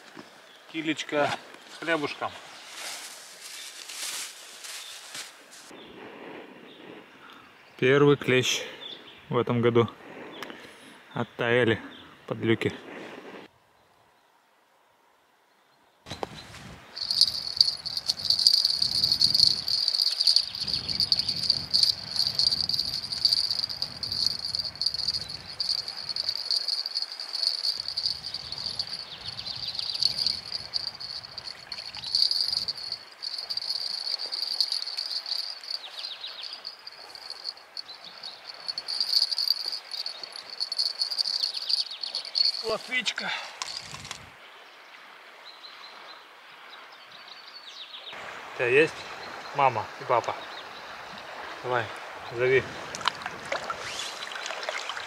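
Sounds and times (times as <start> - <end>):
high-pitched insect-like trill: 17.0 - 43.0.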